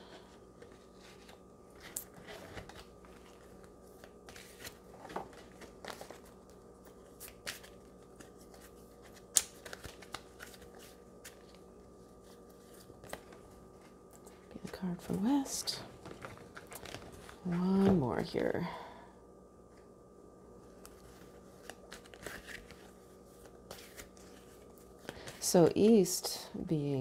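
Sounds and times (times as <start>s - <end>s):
faint steady hum: 0.0s - 27.0s
cards shuffling: 0.6s - 11.6s, 20.7s - 25.5s.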